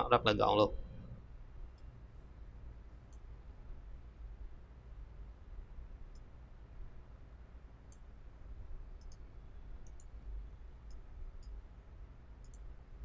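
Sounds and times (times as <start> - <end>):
low steady hum: 0.0 - 13.0
computer mouse clicking: 9.0 - 9.2, 9.8 - 10.1, 12.4 - 12.7.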